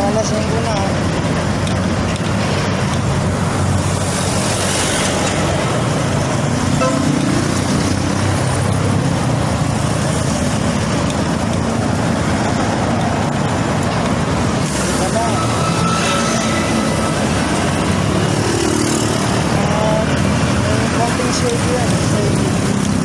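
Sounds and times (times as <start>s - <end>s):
road traffic noise: 0.0s - 23.0s.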